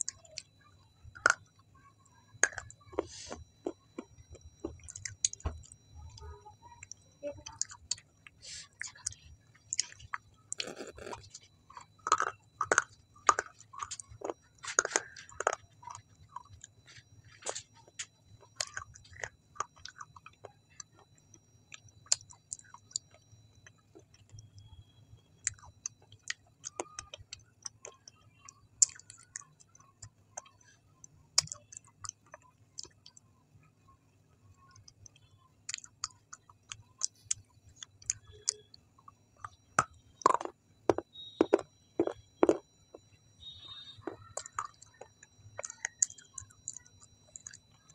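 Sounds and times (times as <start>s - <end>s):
wet chewing mouth clicks: 6.8s - 21.0s.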